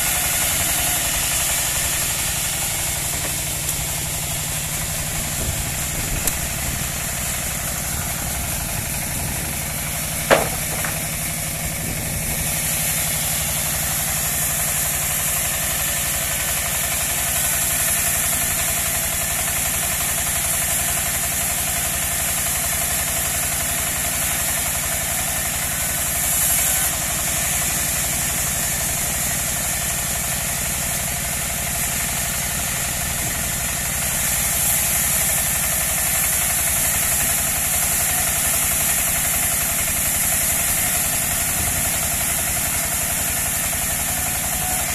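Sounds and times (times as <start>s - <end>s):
sawmill engine running: 0.0s - 44.9s
sharp knock: 10.3s - 11.1s.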